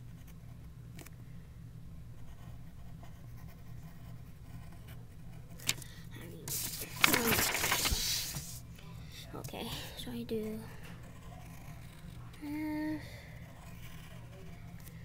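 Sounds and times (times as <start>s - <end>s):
pencil scratching on paper: 10.7s - 12.4s, 13.4s - 14.8s.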